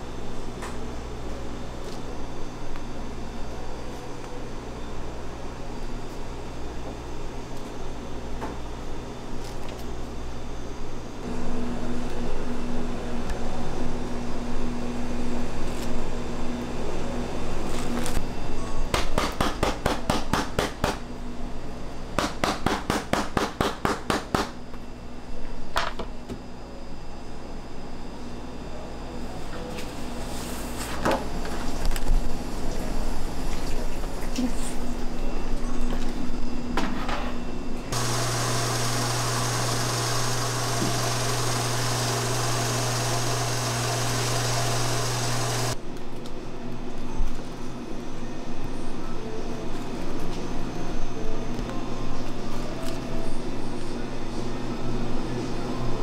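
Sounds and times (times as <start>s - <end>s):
oven fan humming: 24.6s - 45.8s
quiet kitchen sound: 28.7s - 47.8s.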